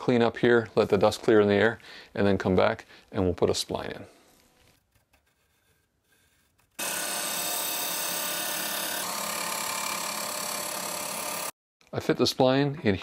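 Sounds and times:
disc sander grinding wood: 6.8s - 11.5s.

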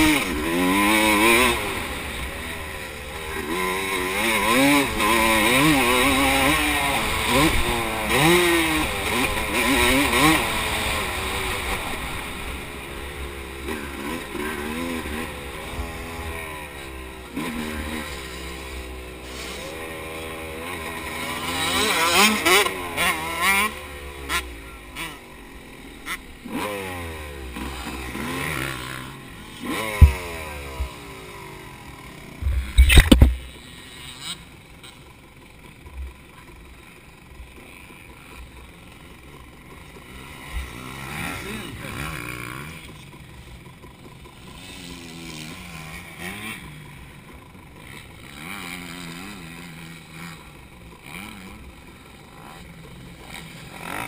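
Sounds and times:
dirt bike engine revving: 0.0s - 54.0s
loud thumps: 32.4s - 33.4s.

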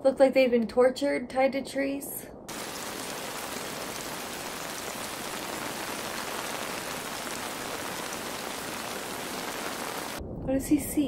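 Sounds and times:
steady rain falling: 2.5s - 10.2s.

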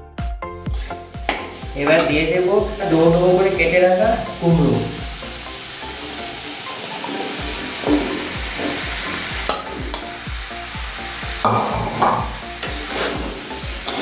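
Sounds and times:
hot oil sizzling: 0.6s - 14.0s
metal spatula clattering and scraping: 11.6s - 14.0s.

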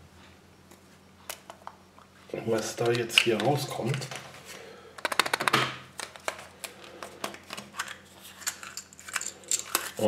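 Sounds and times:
plastic capsule clicks and taps: 5.0s - 6.4s
plastic toy parts rattling: 7.2s - 10.0s.

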